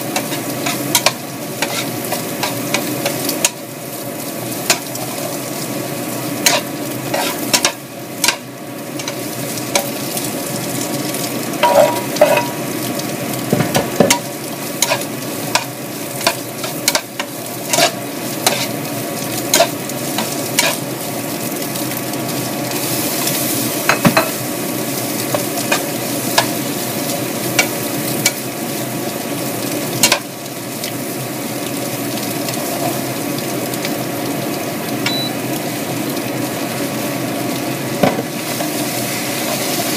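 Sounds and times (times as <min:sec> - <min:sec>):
vegetables sizzling in frying pan: 0:00.0 - 0:39.9
spatula scraping pan: 0:00.1 - 0:03.6, 0:06.4 - 0:08.4, 0:14.8 - 0:18.8, 0:19.4 - 0:20.8.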